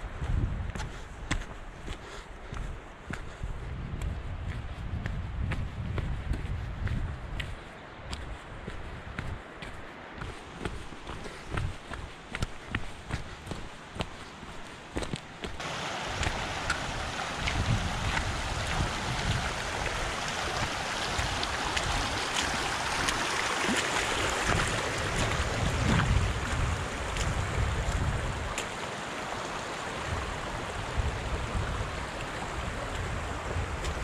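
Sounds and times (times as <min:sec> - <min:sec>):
wind gusting on microphone: 0:00.0 - 0:01.6, 0:03.3 - 0:12.1, 0:15.6 - 0:28.9, 0:29.6 - 0:34.0
mountain water rushing: 0:07.8 - 0:34.0.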